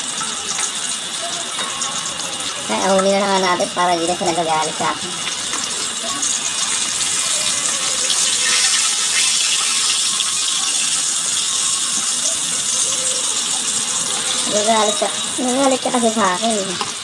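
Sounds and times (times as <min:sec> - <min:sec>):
oil sizzling in a frying pan: 0:00.0 - 0:17.0.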